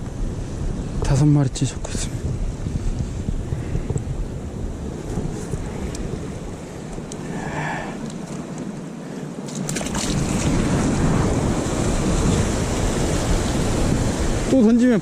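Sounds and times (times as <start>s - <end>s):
wind buffeting microphone: 0.0s - 15.0s
sea swell washing against rocks: 9.4s - 15.0s.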